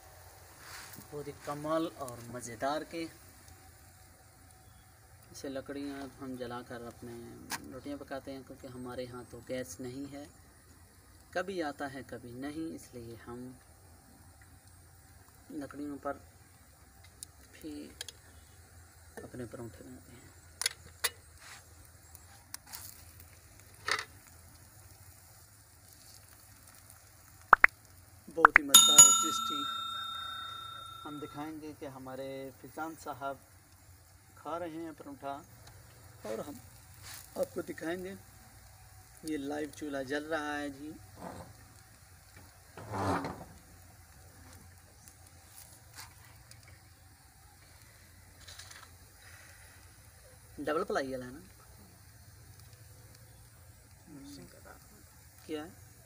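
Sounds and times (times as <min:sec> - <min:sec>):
wood fire hissing: 0:00.0 - 0:29.6, 0:31.1 - 0:56.0
flatbread sizzling in fat: 0:00.0 - 0:29.7, 0:31.0 - 0:56.0
fire crackling: 0:00.0 - 0:42.8, 0:43.4 - 0:56.0
short high chirps: 0:28.5 - 0:31.5.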